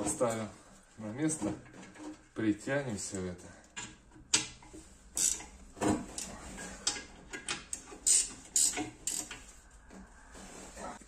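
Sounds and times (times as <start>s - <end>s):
spanner clicking on bolts: 5.2s - 5.5s, 6.2s - 9.4s.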